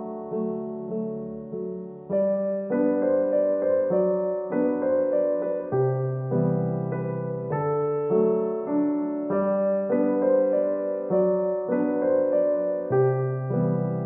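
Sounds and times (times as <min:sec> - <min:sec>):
background piano music: 0:00.0 - 0:14.0.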